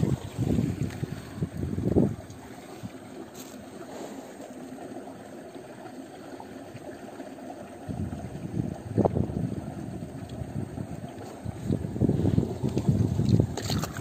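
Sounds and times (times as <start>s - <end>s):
wind rumbling on microphone: 0.0s - 3.3s, 7.7s - 14.0s.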